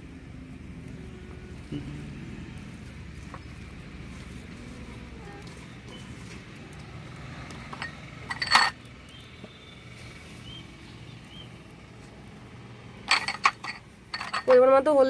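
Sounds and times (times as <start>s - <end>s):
glass bowls clinking: 7.7s - 8.8s, 13.0s - 14.7s.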